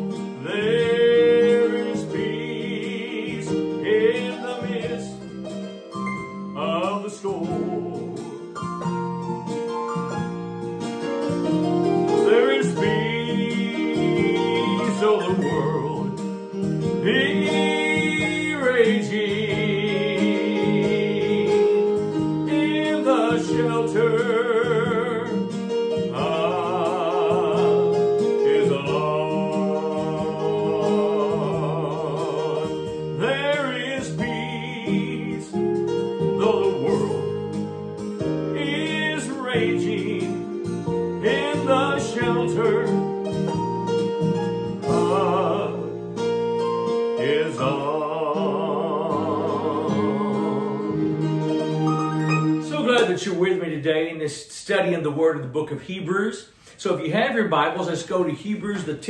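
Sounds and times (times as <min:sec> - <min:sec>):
person singing with vibrato: 0:00.0 - 0:05.5, 0:06.5 - 0:08.7, 0:12.1 - 0:37.6, 0:38.5 - 0:40.6, 0:41.2 - 0:43.1, 0:44.7 - 0:46.2, 0:47.2 - 0:53.2
acoustic guitar: 0:00.0 - 0:59.0.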